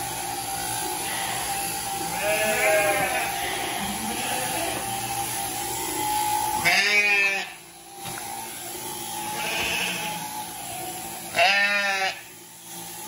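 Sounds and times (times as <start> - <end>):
electric clippers droning: 0.0 - 13.0
sheep bleating: 1.0 - 4.9, 6.6 - 7.6, 9.3 - 10.2, 11.3 - 12.3.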